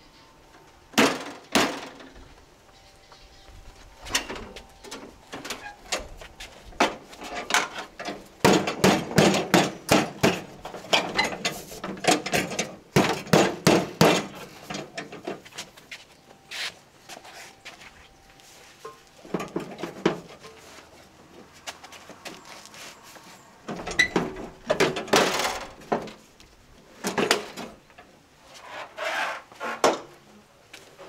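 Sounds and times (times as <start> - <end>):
tractor hood clanking and rattling: 1.0 - 2.2, 4.0 - 15.6, 18.9 - 20.6, 23.7 - 26.2, 27.0 - 28.1.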